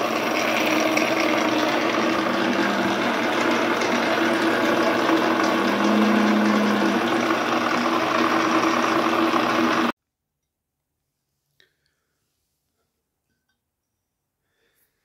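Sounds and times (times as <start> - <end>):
milling machine humming: 0.0 - 9.9.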